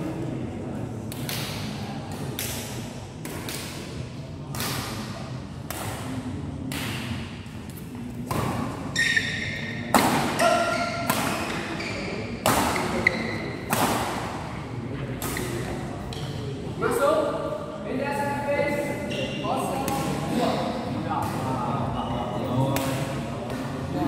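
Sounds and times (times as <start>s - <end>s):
rackets hitting shuttlecock: 1.1s - 14.5s, 15.1s - 16.4s
shoes squeaking on court floor: 8.8s - 13.7s, 19.0s - 19.4s.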